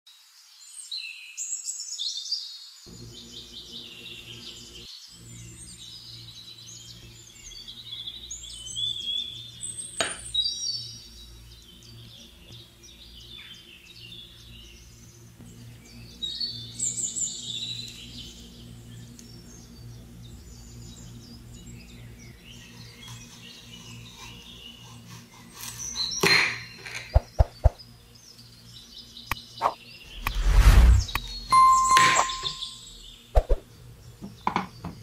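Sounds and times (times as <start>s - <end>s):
steady low hum: 30.1s - 31.8s.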